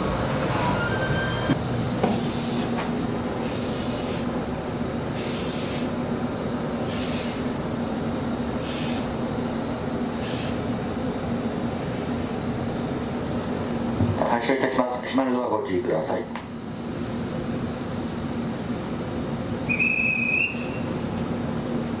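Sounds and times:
train equipment humming: 0.0 - 22.0
higher hiss: 2.0 - 6.1, 6.7 - 14.0.

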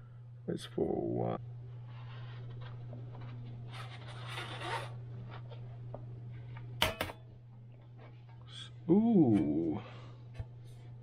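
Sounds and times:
steady low hum: 0.0 - 11.0
laptop rubbing and scraping on desk: 1.9 - 5.6.

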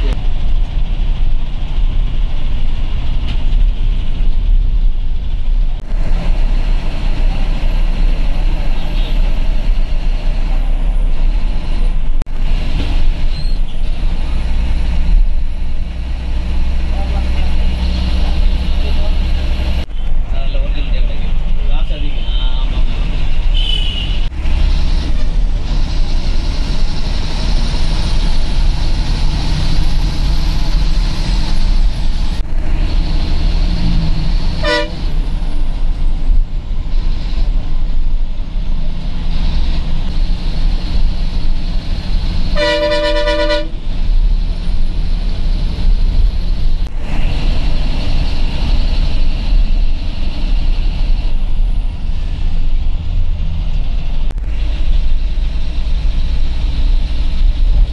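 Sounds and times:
bus engine and road noise: 0.0 - 57.9
bus horn: 23.5 - 24.3, 34.6 - 35.1, 42.5 - 43.8.

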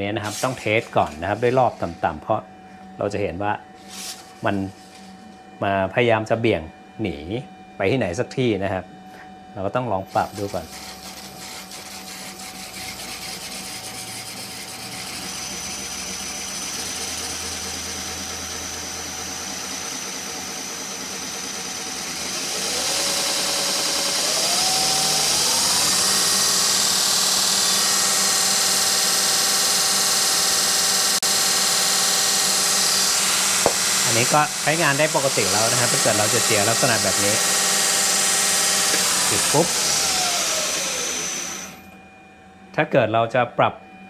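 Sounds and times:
belt grinder motor whining: 0.0 - 2.2, 10.1 - 42.0.

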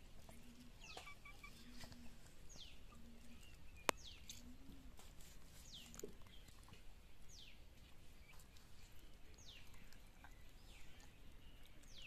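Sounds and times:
bird calling: 0.3 - 4.9.

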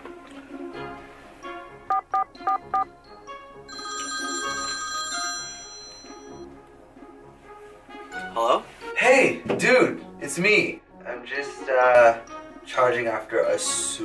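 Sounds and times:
background music: 0.0 - 14.0
mobile phone ringing: 1.9 - 2.9, 3.7 - 6.4.

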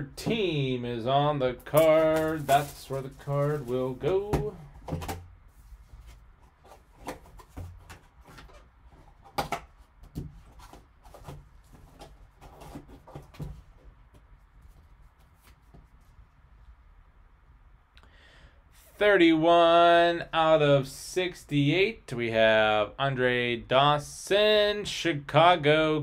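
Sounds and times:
cardboard rustling: 1.6 - 16.2.

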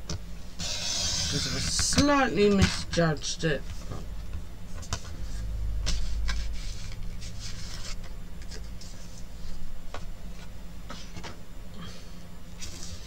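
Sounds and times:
trimmer blade scraping card: 0.6 - 2.0
paper rustling: 4.8 - 9.6.

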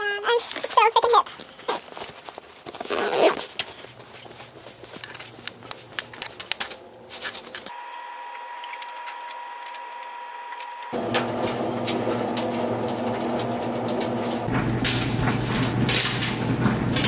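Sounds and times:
washing machine humming: 7.7 - 17.0.

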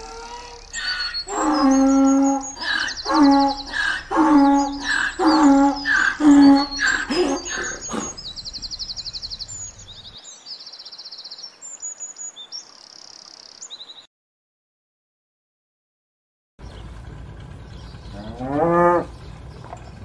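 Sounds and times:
donkey braying: 0.0 - 10.2, 17.9 - 20.0
small birds chirping and trilling: 0.0 - 14.1, 16.6 - 20.0.

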